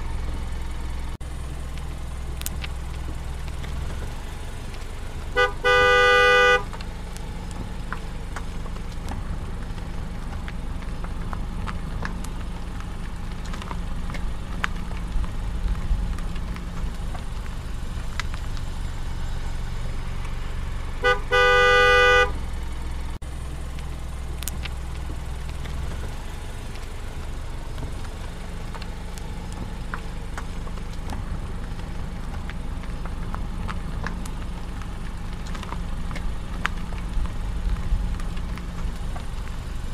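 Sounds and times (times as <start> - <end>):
road and engine drone: 0.0 - 39.9
car horn honking: 5.3 - 6.8, 20.9 - 22.5.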